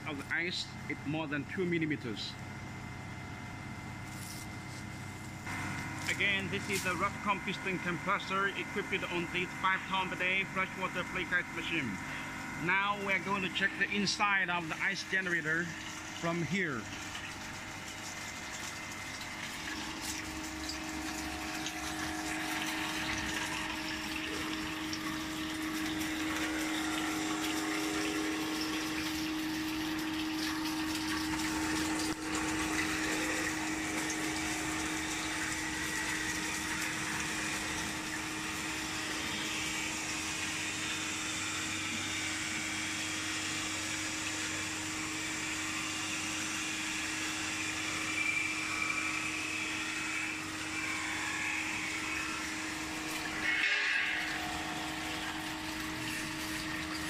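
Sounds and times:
machine humming: 0:00.0 - 0:57.0
water rushing over drum: 0:16.8 - 0:57.0.

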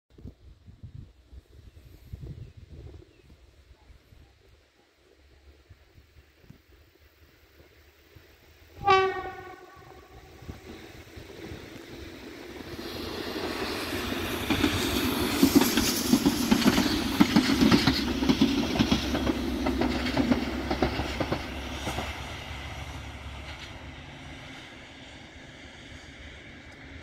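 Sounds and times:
train wheels clicking on rail joints: 0:09.5 - 0:24.6.

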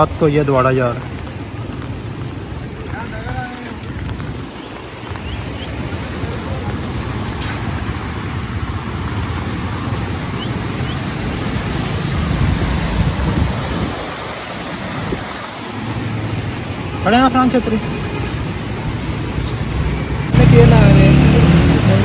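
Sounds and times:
floodwater rushing: 0:00.0 - 0:22.0
wind buffeting microphone: 0:01.0 - 0:16.8.

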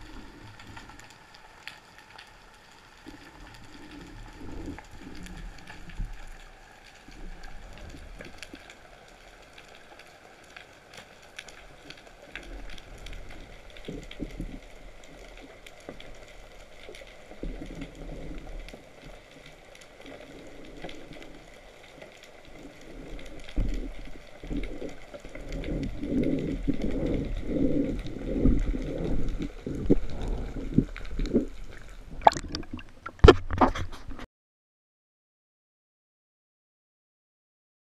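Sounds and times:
muffled underwater water movement: 0:00.0 - 0:34.2
low water sloshing: 0:10.1 - 0:33.6
sharp splashes and knocks: 0:32.2 - 0:34.1.

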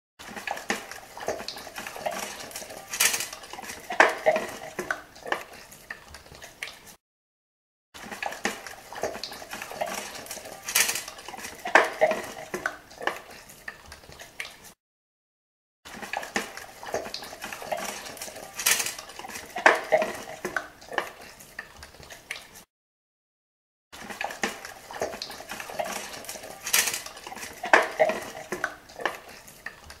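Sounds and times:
bones clattering in metal bowl: 0:00.2 - 0:06.5, 0:08.0 - 0:13.3, 0:15.9 - 0:21.1, 0:24.0 - 0:30.0.

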